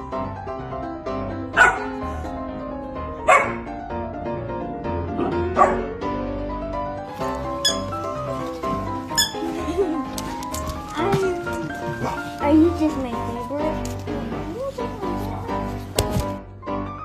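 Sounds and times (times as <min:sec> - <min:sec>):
background music: 0:00.0 - 0:17.0
puppy barking: 0:01.5 - 0:02.0, 0:03.2 - 0:03.7, 0:05.2 - 0:06.0, 0:07.2 - 0:10.4.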